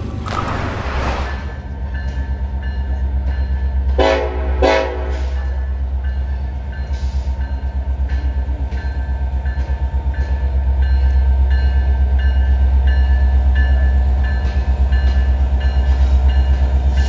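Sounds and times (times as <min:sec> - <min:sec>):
diesel locomotive engine rumble: 0:00.0 - 0:17.0
train air horn blasts: 0:04.0 - 0:05.6.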